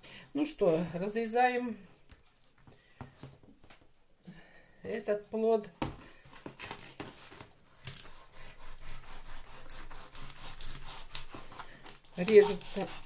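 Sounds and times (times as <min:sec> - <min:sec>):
knife scraping through gourd skin: 0:06.6 - 0:13.0.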